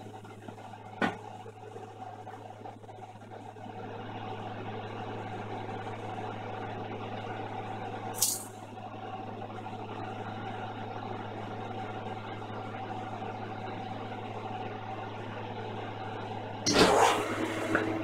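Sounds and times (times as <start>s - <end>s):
electric machine hum: 9.2s - 18.0s.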